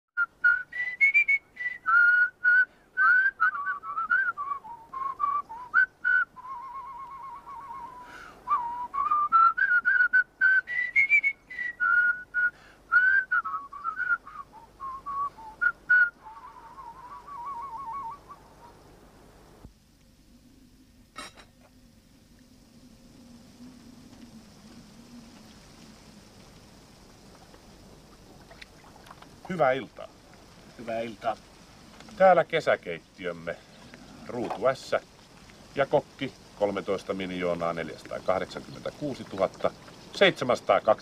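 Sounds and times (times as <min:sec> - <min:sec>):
person whistling a melody: 0:00.2 - 0:18.4.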